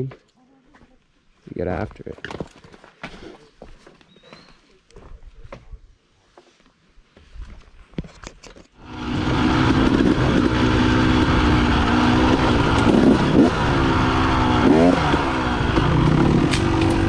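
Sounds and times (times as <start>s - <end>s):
dirt bike engine revving: 8.8s - 17.0s.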